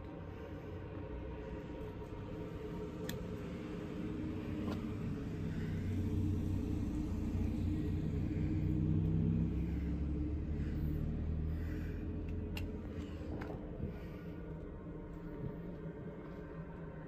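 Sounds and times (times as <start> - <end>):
machinery rumble and hum: 0.0 - 17.0.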